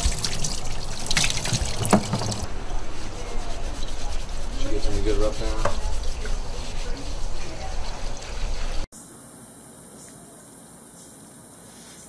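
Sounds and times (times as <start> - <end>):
water running from hose: 0.0 - 2.5, 3.2 - 8.9
hands scrubbing wet fur: 0.0 - 8.9.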